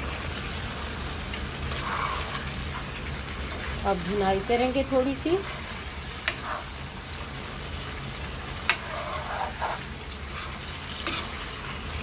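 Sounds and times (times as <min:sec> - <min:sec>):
curry sizzling in a wok: 0:00.0 - 0:12.0
spatula scraping a pan: 0:01.6 - 0:03.8, 0:04.8 - 0:06.9, 0:08.6 - 0:11.8.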